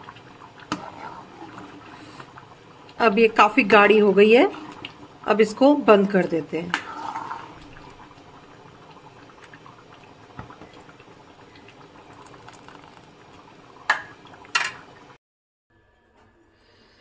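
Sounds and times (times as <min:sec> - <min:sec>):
thick pudding bubbling in a pan: 0:00.0 - 0:15.2
ladle stirring and pouring: 0:00.1 - 0:02.5, 0:03.9 - 0:05.2, 0:06.2 - 0:08.5, 0:11.6 - 0:14.8.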